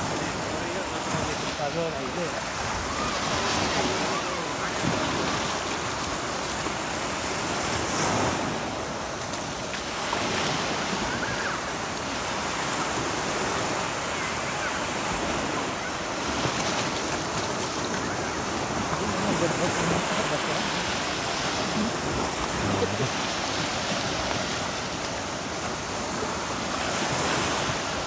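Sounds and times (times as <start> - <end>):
sea waves breaking on beach: 0.0 - 28.0
wind on microphone: 14.8 - 28.0.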